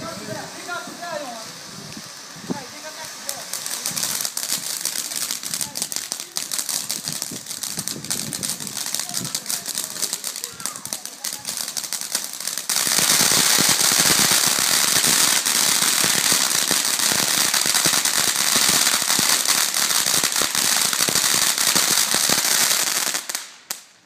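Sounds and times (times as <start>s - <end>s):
firework fountain hissing and crackling: 0.0s - 24.0s.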